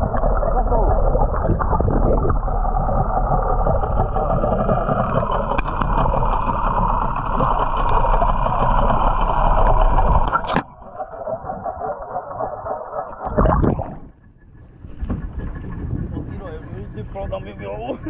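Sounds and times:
underwater rushing water: 0:00.0 - 0:14.2.

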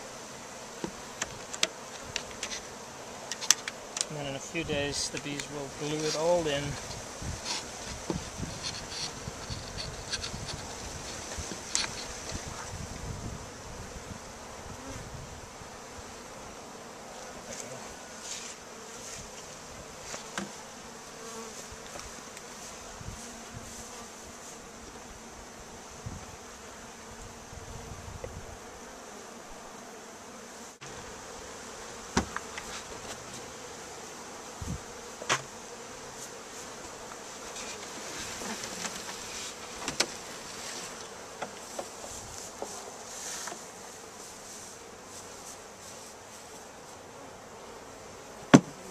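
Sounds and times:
bees buzzing: 0:00.0 - 0:48.9
sharp knocks: 0:48.5 - 0:48.8.

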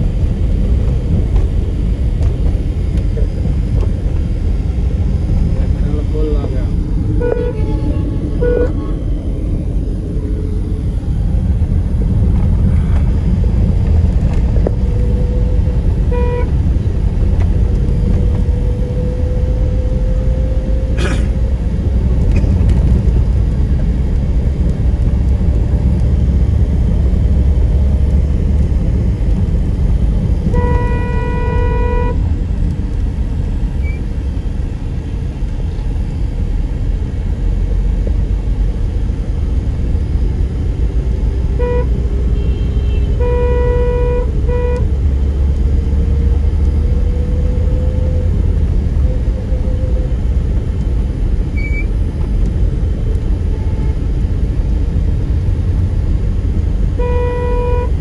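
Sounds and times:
car road and engine rumble: 0:00.0 - 0:58.0
car horn tooting: 0:07.2 - 0:09.0, 0:16.1 - 0:16.5, 0:30.5 - 0:32.2, 0:41.6 - 0:44.9, 0:57.0 - 0:58.0.

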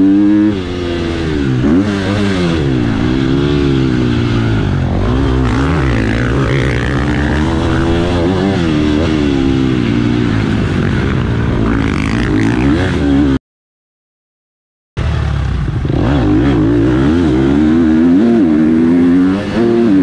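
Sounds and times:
motocross bike engine revving: 0:00.0 - 0:13.4, 0:15.0 - 0:20.0.

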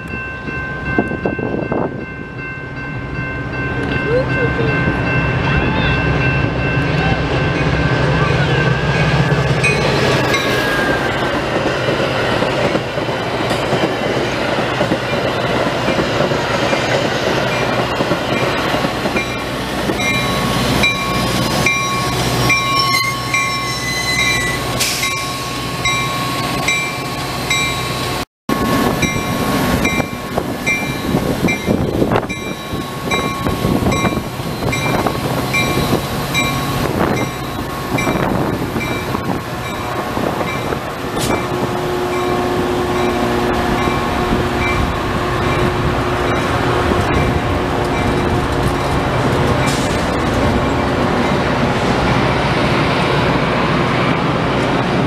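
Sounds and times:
train rumbling past: 0:00.0 - 0:55.0
wheels clicking on rails: 0:46.4 - 0:51.6.

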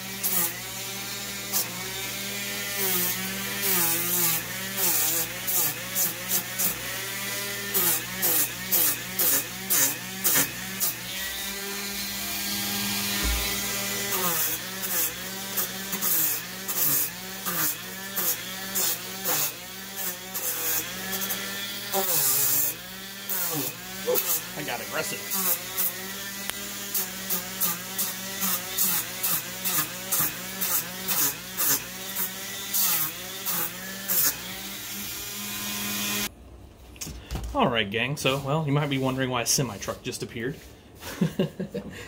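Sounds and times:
rotary tool motor whine: 0:00.0 - 0:36.3
gritty scraping of sanding foam: 0:07.7 - 0:34.7, 0:38.0 - 0:41.4.

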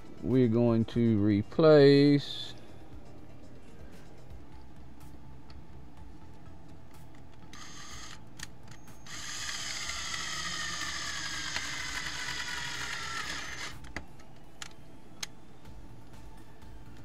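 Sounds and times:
cordless drill motor whine: 0:07.5 - 0:14.0.

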